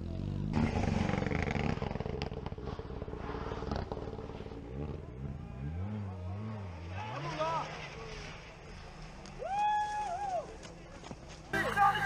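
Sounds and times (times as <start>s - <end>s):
rally car engine at high revs: 0.0s - 8.4s.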